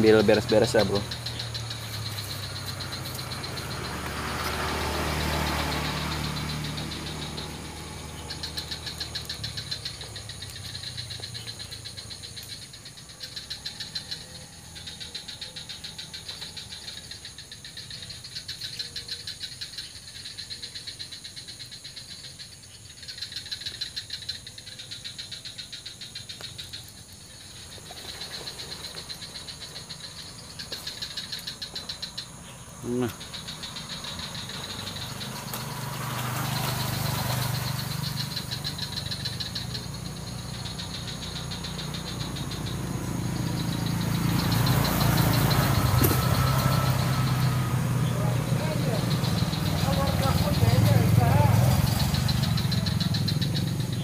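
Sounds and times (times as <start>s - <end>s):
animals calling in pulsing trills: 0.0s - 54.0s
rustle: 0.0s - 54.0s.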